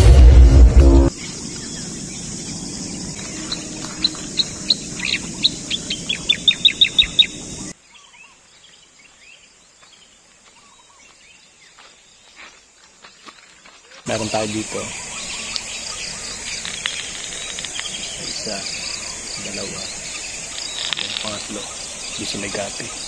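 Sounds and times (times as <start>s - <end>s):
bird chirping sharply: 3.4s - 8.0s
faint bird calls: 13.7s - 23.0s
steady high hiss: 14.1s - 23.0s.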